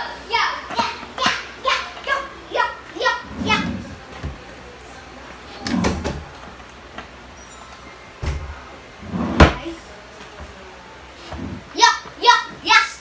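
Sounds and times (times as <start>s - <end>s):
drawer rumbling: 3.2s - 4.4s, 5.6s - 6.4s, 8.3s - 9.6s, 11.2s - 11.7s
drawer thump: 9.1s - 9.6s.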